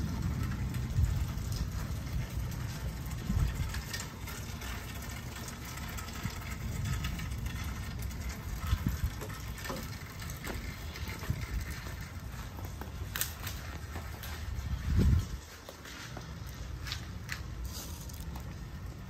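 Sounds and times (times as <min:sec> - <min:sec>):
rain hiss: 0:00.0 - 0:14.8
low rumble: 0:00.0 - 0:15.6
hailstones ticking: 0:00.0 - 0:19.0.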